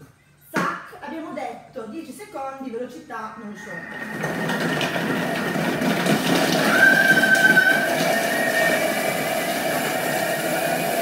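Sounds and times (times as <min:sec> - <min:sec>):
food processor motor whine: 0:03.7 - 0:11.0.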